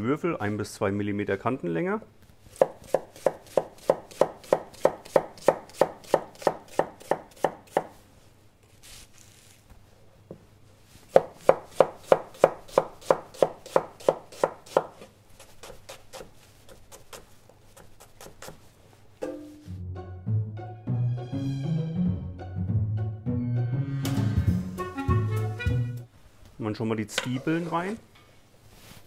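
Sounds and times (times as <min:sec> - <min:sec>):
knife chopping on cutting board: 0:02.5 - 0:07.9, 0:11.1 - 0:18.6.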